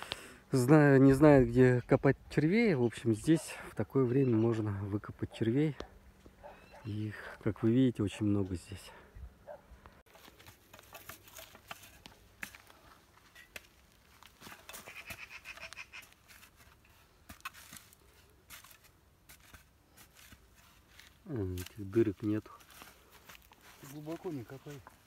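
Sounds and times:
spade digging into soil: 10.1s - 21.8s
soil clods tumbling: 10.1s - 25.0s.

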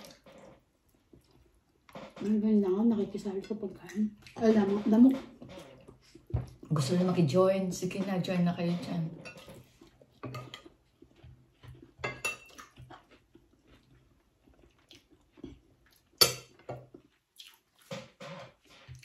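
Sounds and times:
chewing: 0.0s - 2.3s, 3.8s - 4.4s, 9.3s - 19.0s
cutlery clinking on ceramic plates: 9.2s - 10.8s, 12.0s - 12.6s, 16.2s - 16.9s.

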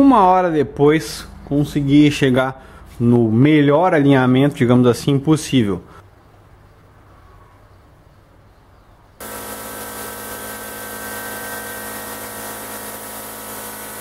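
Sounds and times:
spray gun hissing: 9.2s - 14.0s.

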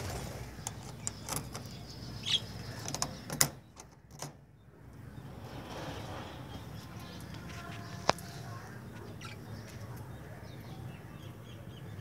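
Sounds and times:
budgerigars chirping: 0.7s - 3.3s, 9.1s - 9.8s.

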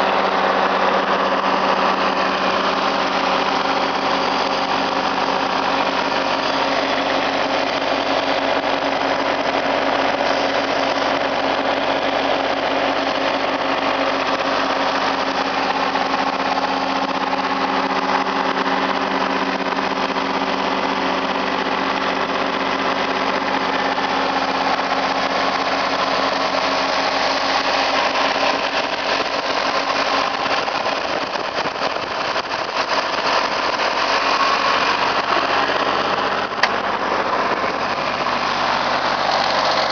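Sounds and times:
tractor diesel engine running: 0.0s - 39.9s.

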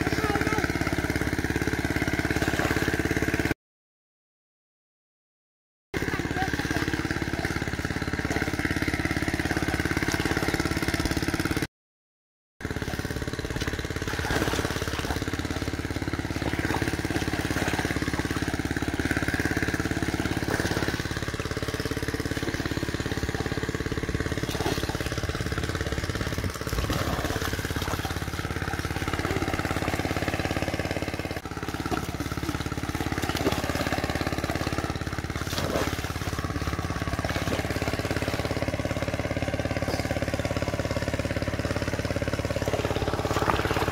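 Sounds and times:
engine humming steadily: 0.0s - 3.6s, 6.0s - 11.7s, 12.6s - 43.9s.

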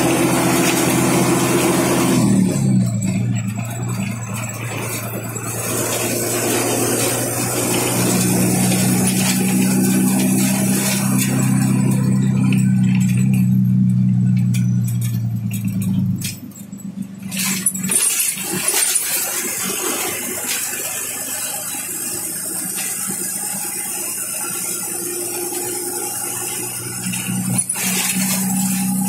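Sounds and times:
bus engine drone: 0.0s - 29.0s
rattles and clicks: 0.0s - 29.0s
road and wind rumble: 0.0s - 29.0s.

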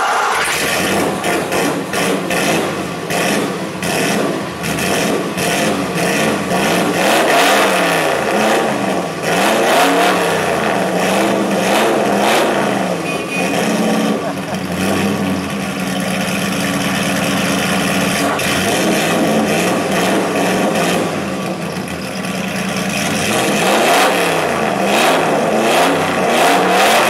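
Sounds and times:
engine revving: 0.0s - 27.0s.

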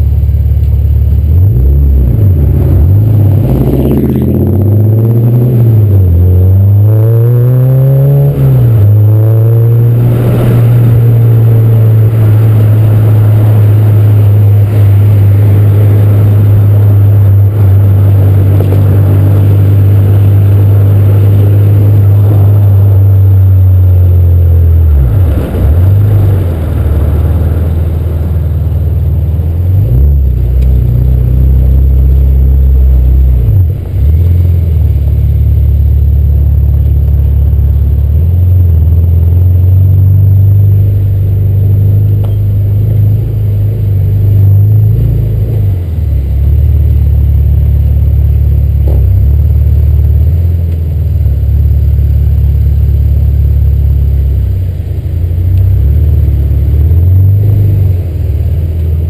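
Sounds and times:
car engine and exhaust driving: 0.0s - 59.0s.

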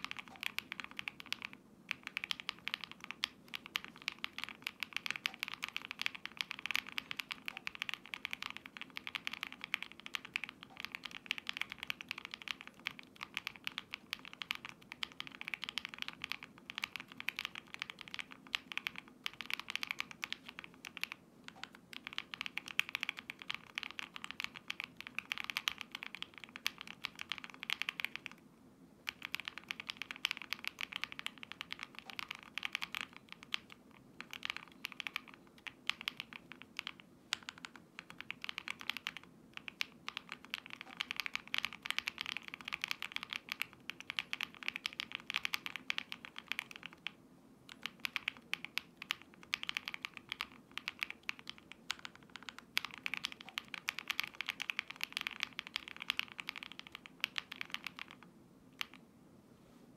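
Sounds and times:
mechanical keyboard typing: 0.0s - 28.4s, 29.0s - 59.0s.

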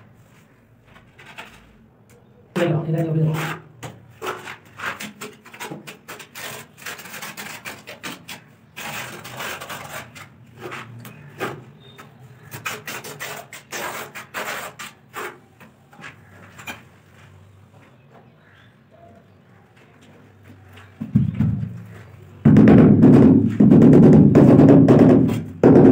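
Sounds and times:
trowel scraping mortar on tile: 3.0s - 15.6s.

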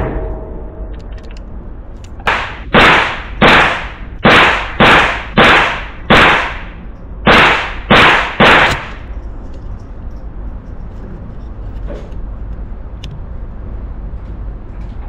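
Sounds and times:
gunshots echoing indoors: 0.0s - 9.2s.

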